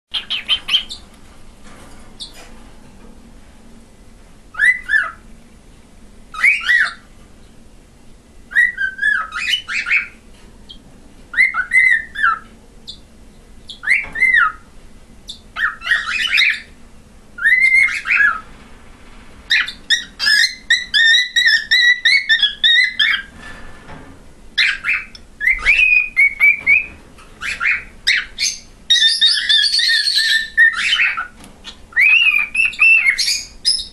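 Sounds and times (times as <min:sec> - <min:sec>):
cockatiel whistling: 0:04.5 - 0:05.2, 0:06.4 - 0:07.0, 0:08.5 - 0:10.2, 0:11.4 - 0:12.5, 0:17.4 - 0:18.4, 0:24.6 - 0:31.3, 0:32.0 - 0:33.9.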